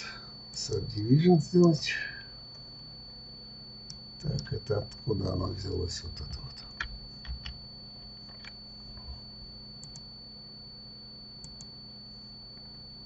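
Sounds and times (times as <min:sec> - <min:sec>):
faint high whine: 0:00.0 - 0:13.0
computer mouse and keyboard clicks: 0:06.0 - 0:07.6.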